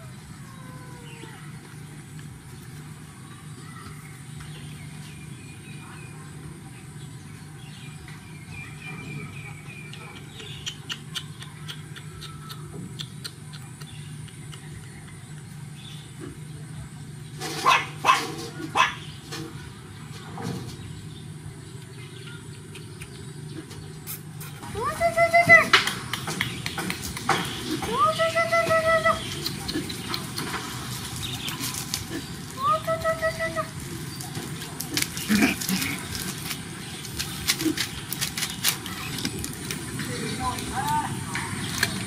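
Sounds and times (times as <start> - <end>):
steady low hum: 0.0 - 42.0
dog barking: 17.6 - 19.0.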